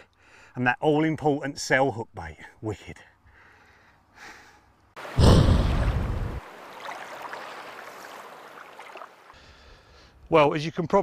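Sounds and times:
deep boom: 0:05.2 - 0:06.4.

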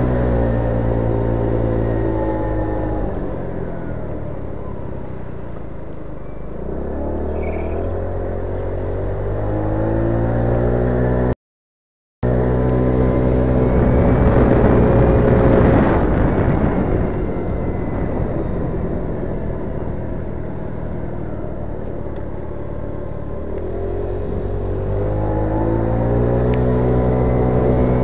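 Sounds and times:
scooter engine running: 0:00.0 - 0:11.3, 0:12.2 - 0:28.0
wind on microphone: 0:13.0 - 0:21.0.

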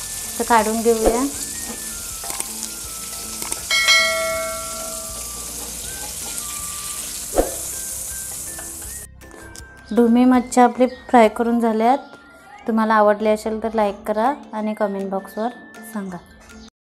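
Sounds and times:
spatula turning fish: 0:00.0 - 0:09.0
fish sizzling in oil: 0:00.0 - 0:09.1
metallic ding: 0:03.7 - 0:05.7.

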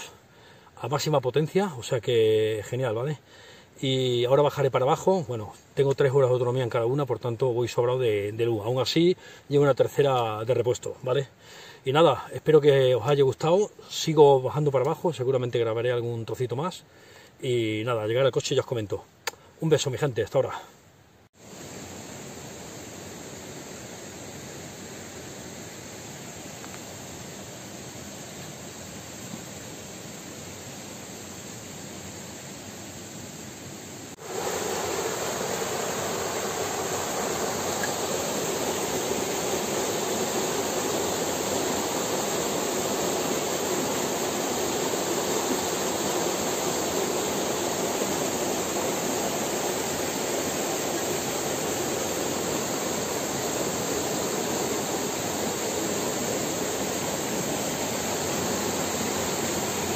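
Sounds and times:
rushing water: 0:34.1 - 0:59.9.

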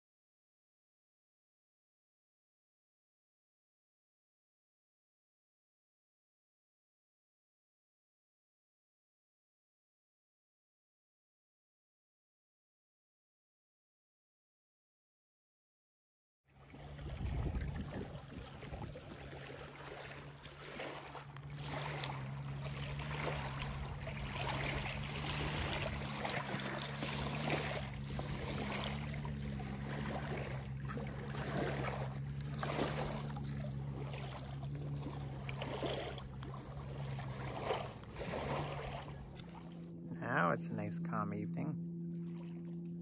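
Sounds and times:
low motor hum: 0:16.6 - 0:43.0
water splashing against hull: 0:16.6 - 0:43.0.

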